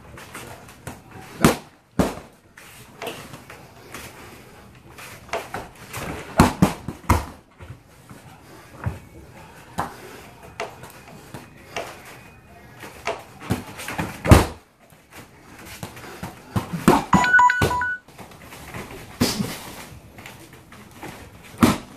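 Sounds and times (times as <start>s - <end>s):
punches and kicks on punching bag: 1.4s - 2.3s, 6.2s - 7.4s, 21.6s - 21.9s.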